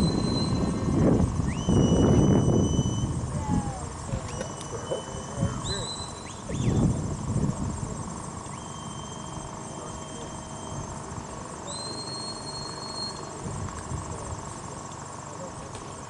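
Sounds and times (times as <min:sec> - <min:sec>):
herding whistle long notes: 0:00.0 - 0:03.2, 0:04.2 - 0:06.9, 0:08.4 - 0:13.3
low rumble: 0:00.0 - 0:04.2, 0:06.1 - 0:08.5
insects trilling: 0:00.0 - 0:16.0.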